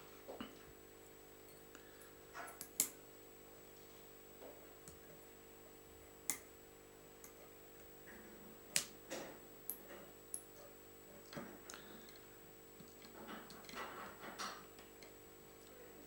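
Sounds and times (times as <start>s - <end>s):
faint steady hum: 0.0s - 16.0s
small clicks and taps: 2.4s - 3.0s.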